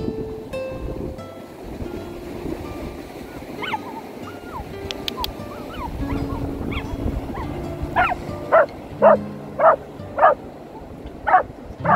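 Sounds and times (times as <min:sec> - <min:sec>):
dog barking: 0:03.6 - 0:10.4, 0:11.3 - 0:11.9.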